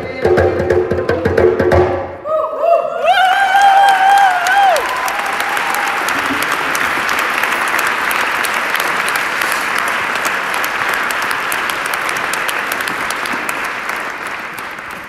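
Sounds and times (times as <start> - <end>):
audience applauding: 3.1 - 15.0.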